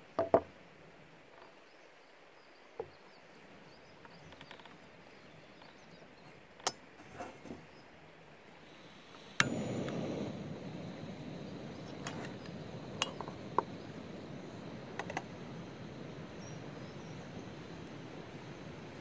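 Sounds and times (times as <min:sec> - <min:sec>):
gas burner hissing: 0:08.5 - 0:19.0
gas stove igniter click: 0:09.0 - 0:19.0.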